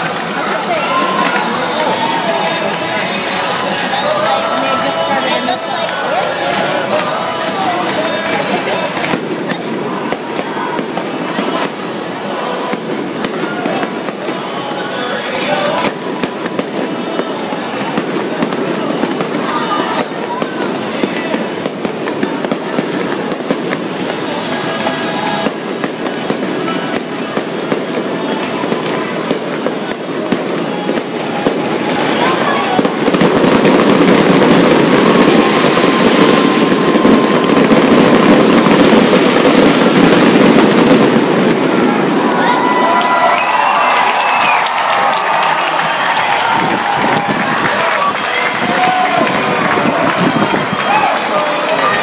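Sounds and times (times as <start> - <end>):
fireworks bursting with cracks: 0.0 - 52.0.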